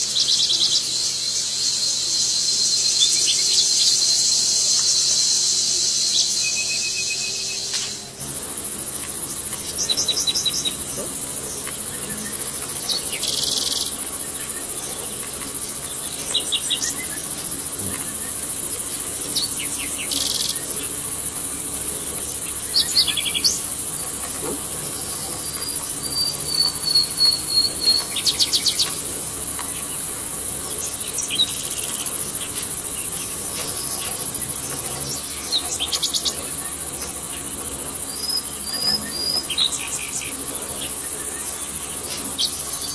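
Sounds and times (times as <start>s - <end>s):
bird warbling whistle: 0.0s - 8.2s
forest insects droning: 0.0s - 42.9s
insect chirping trills: 0.0s - 42.9s.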